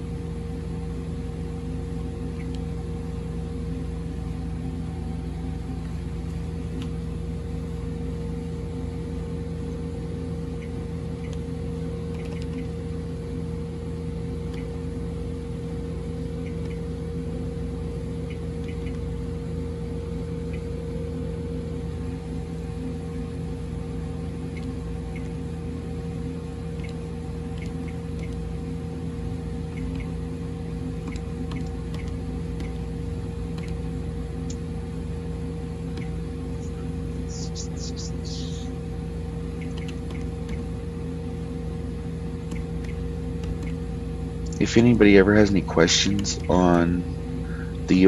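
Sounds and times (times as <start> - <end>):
steady hum with held tones: 0.0 - 48.0.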